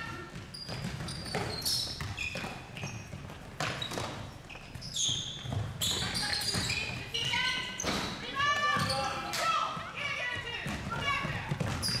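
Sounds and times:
shoe squeaks on court: 0:00.0 - 0:09.3, 0:11.7 - 0:12.0
basketball bouncing on court: 0:00.0 - 0:12.0.

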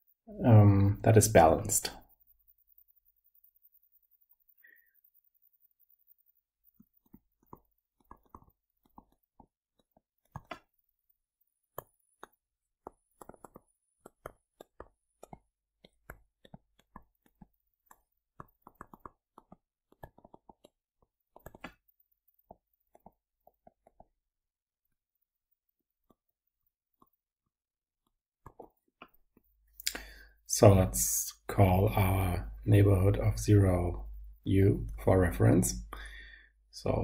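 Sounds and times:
stylus tapping on tablet: 0:01.9 - 0:30.2.

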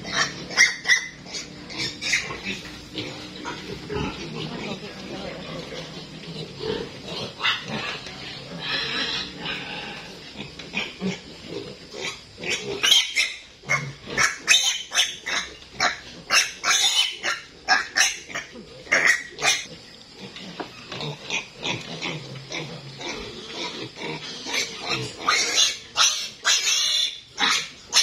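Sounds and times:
piglet squealing: 0:00.1 - 0:02.5, 0:12.5 - 0:19.7, 0:25.3 - 0:28.0.

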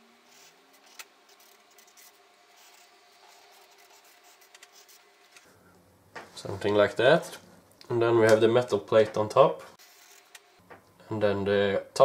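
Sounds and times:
marker scratching on paper: 0:00.3 - 0:05.0.

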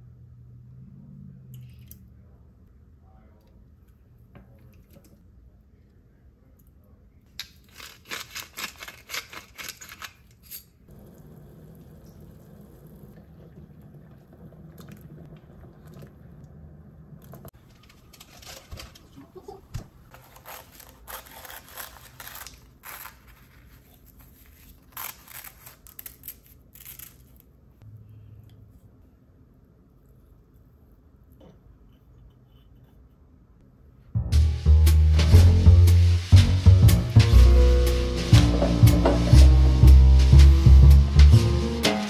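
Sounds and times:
saucepan bubbling: 0:10.9 - 0:17.6.

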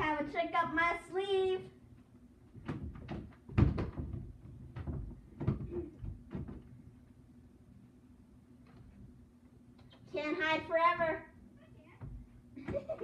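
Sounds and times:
knocks and thumps in room: 0:02.0 - 0:07.2, 0:11.9 - 0:13.0.

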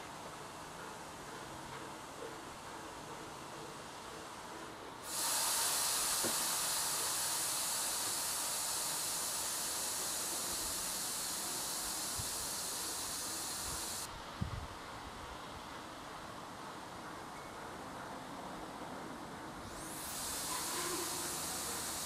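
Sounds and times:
steady high hiss: 0:00.0 - 0:17.2, 0:19.4 - 0:22.0.

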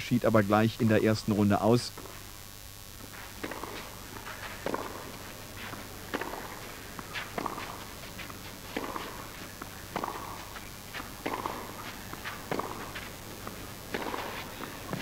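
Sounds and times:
tennis racket hitting ball: 0:03.4 - 0:15.0.

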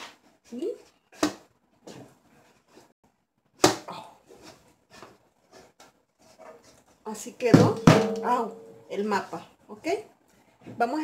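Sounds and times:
knocks on metal baking pan: 0:07.5 - 0:08.4.

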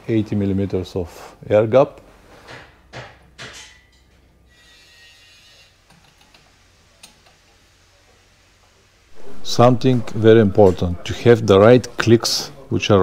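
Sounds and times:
tools clicking and knocking: 0:02.5 - 0:04.1.

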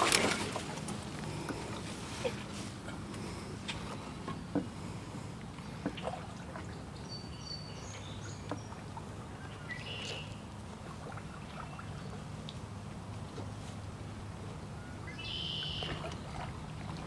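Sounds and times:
water pouring off paddle: 0:00.0 - 0:01.8.

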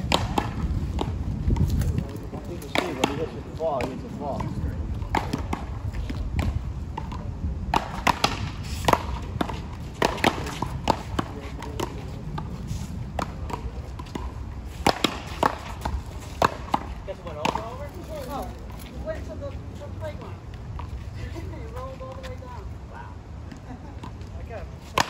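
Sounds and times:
paddleball knocks on paddles and concrete: 0:00.0 - 0:18.4, 0:24.0 - 0:25.0
steady low rumble: 0:00.0 - 0:25.0.

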